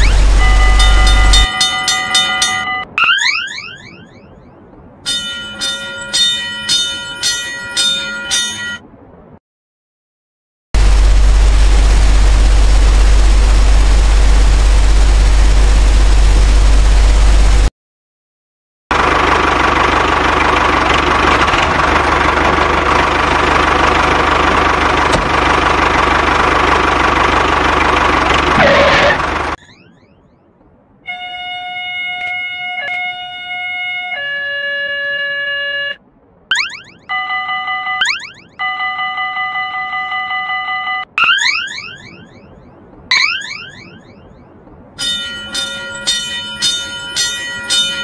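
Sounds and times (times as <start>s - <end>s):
machine engine running: 0.0s - 1.5s, 10.8s - 17.7s, 18.9s - 29.6s
horn-like electronic tones: 0.0s - 4.2s, 31.1s - 36.0s.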